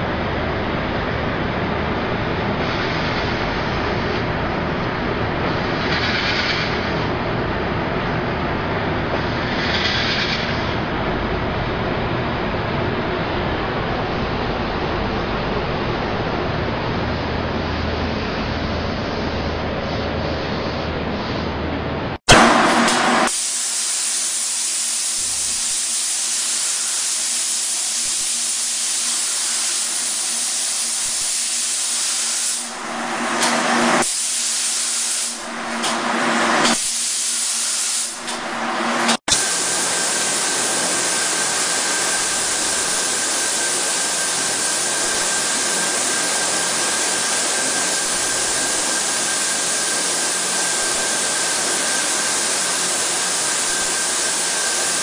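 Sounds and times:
spray guns hissing: 22.7s - 36.0s.

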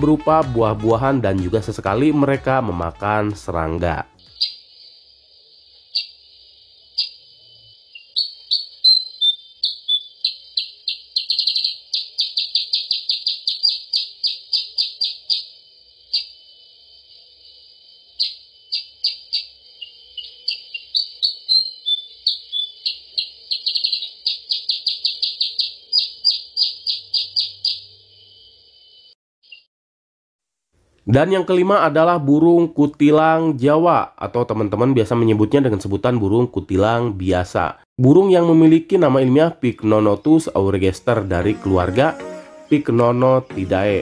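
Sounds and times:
steady high hiss: 0.0s - 12.1s, 13.8s - 24.3s.

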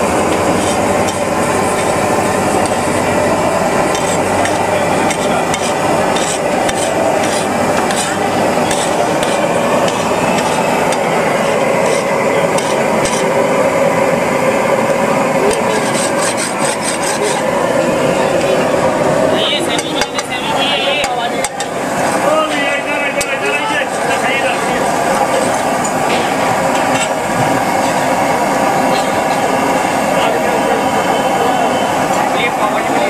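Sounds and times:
street noise hum: 0.0s - 33.0s
metal spatula scraping on griddle: 0.5s - 2.0s, 3.9s - 11.0s, 11.8s - 13.3s, 15.5s - 17.5s.

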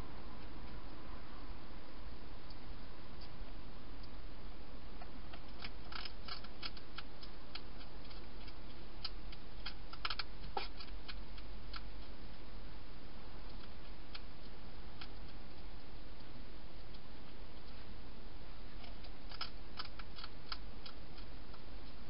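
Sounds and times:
steady hiss: 0.0s - 22.0s
hedgehog crunching food: 5.0s - 12.5s, 13.4s - 17.8s, 18.7s - 22.0s.

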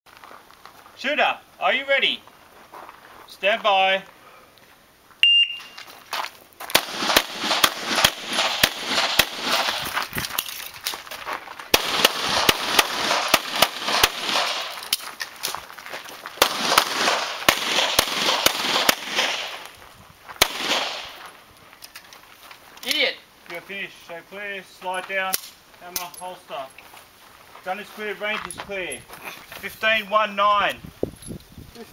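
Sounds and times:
shot timer beep: 5.2s - 5.8s
pistol shots echoing: 6.7s - 9.8s, 11.7s - 14.9s, 16.4s - 19.7s, 20.4s - 21.2s.

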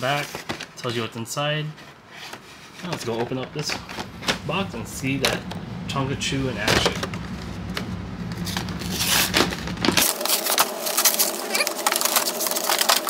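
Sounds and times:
box being opened by hand: 0.0s - 0.8s, 8.4s - 13.0s.

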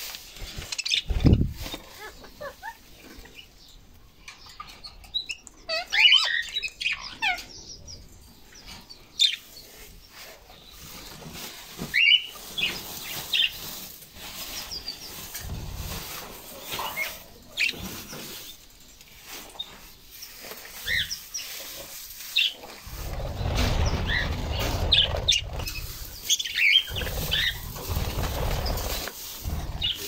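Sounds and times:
budgerigars chirping: 26.4s - 27.7s.

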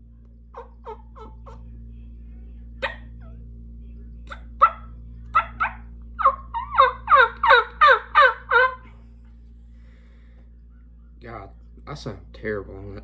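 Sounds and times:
turkey call yelps: 0.5s - 1.6s, 4.6s - 8.8s.

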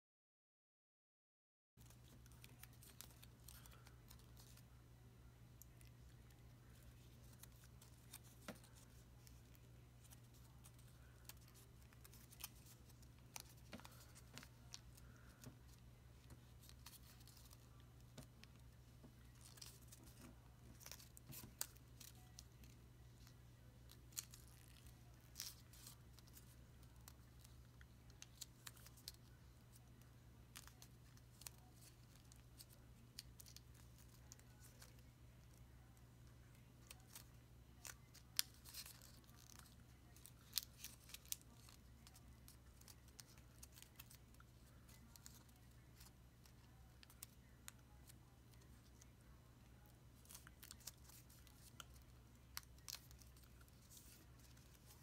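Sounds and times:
low steady hum: 1.8s - 55.0s
paper being folded and creased: 5.8s - 18.6s, 36.8s - 47.3s, 49.8s - 55.0s.

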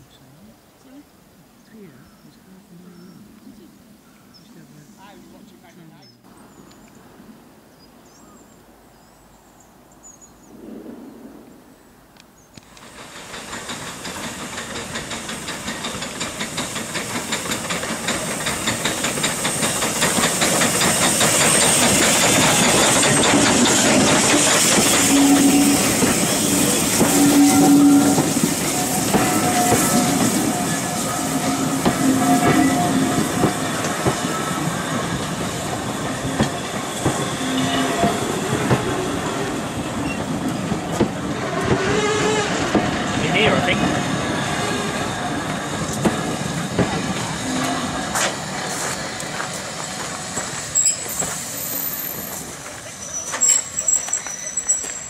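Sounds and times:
steam hissing: 12.6s - 55.0s
wheels clattering over rail joints: 12.6s - 55.0s
short squeals of coaches: 50.8s - 55.0s.

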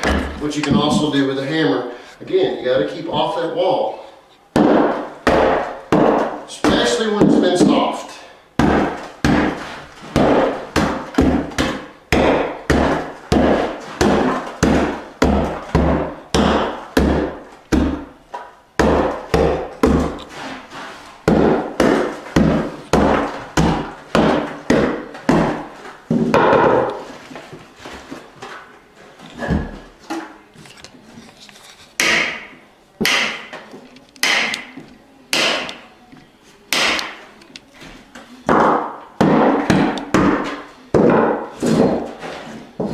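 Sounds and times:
hammer breaking particle board: 4.6s - 7.4s, 8.6s - 18.1s.

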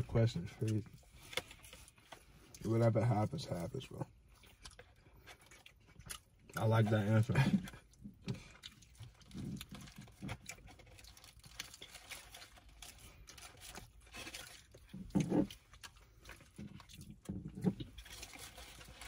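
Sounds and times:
chewing food: 0.0s - 19.0s
food wrappers crinkling: 0.0s - 19.0s.

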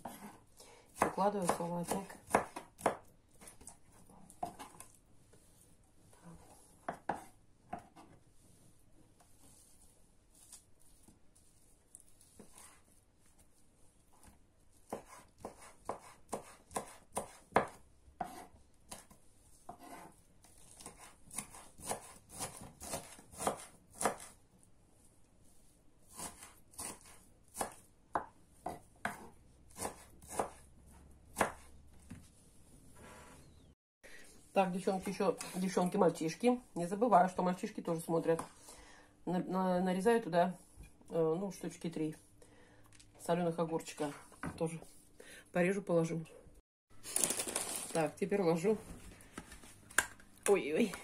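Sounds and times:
knife chopping on wooden board: 0.0s - 3.7s, 6.8s - 8.2s, 14.9s - 24.4s, 26.1s - 32.3s.

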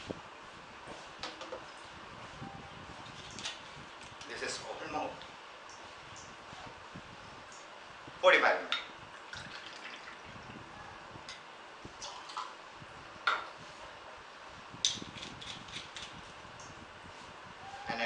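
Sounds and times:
liquid pouring into a shaker: 9.2s - 10.4s.

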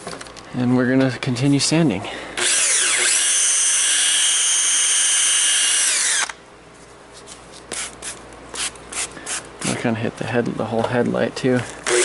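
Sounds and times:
power drill motor whine: 2.4s - 6.4s.

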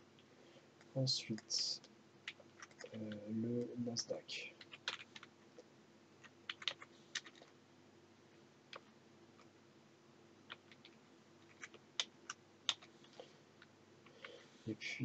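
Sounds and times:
faint steady hum: 0.0s - 15.0s
keyboard keystrokes: 4.6s - 5.3s, 6.5s - 7.5s.

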